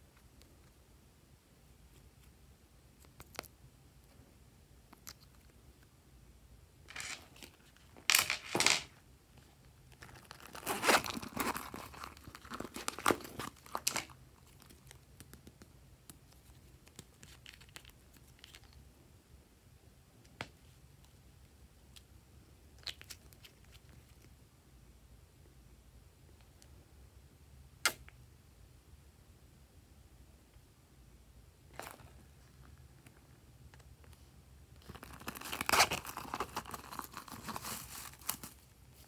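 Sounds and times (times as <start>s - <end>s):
plastic wrapping crinkling: 9.9s - 15.0s, 34.8s - 39.0s.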